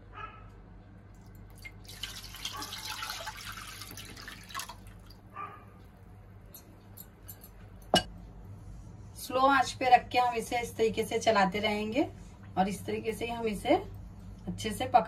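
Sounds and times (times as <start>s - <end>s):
liquid pouring and splashing: 1.2s - 5.2s.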